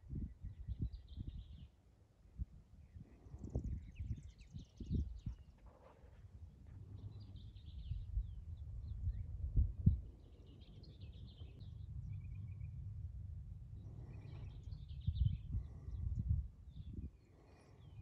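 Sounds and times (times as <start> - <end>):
low uneven rumble: 2.8 - 18.0
birds chirping and trilling: 2.9 - 12.9, 13.8 - 18.0.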